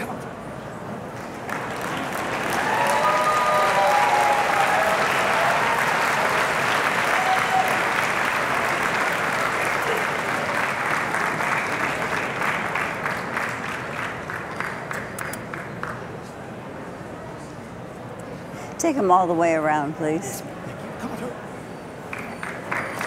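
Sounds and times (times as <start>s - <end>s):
audience applauding: 1.2s - 16.1s, 22.1s - 23.0s.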